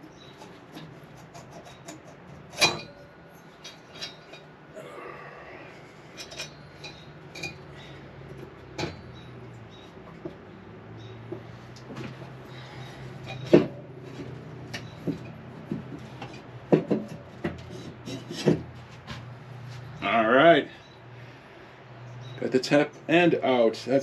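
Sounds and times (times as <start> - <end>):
metal clinks and knocks: 0.0 - 4.5, 6.1 - 19.2
metal scraping: 0.0 - 10.4, 11.0 - 20.0.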